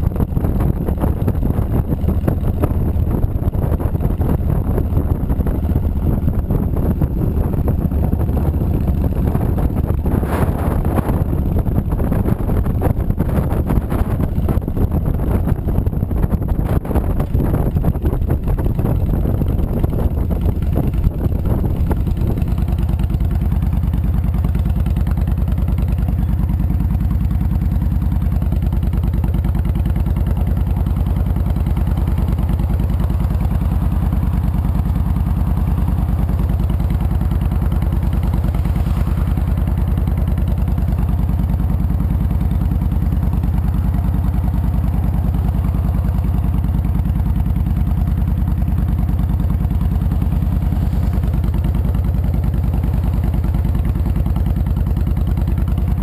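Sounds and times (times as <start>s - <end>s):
wind rush: 0.0s - 22.5s
motorcycle engine running: 0.0s - 56.0s.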